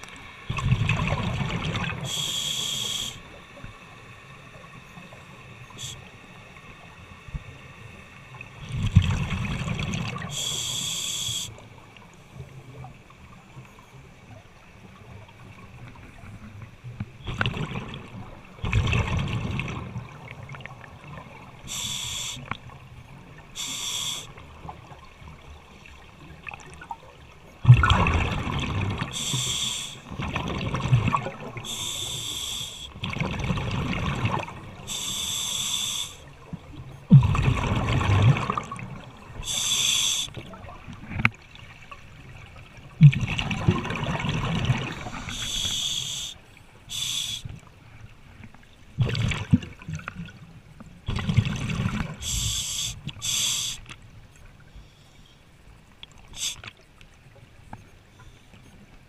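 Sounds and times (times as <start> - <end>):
bubbling underwater exhales: 27.6 - 32.0, 37.1 - 39.7, 42.9 - 46.3
regulator hissing: 45.2 - 47.5, 52.2 - 53.8.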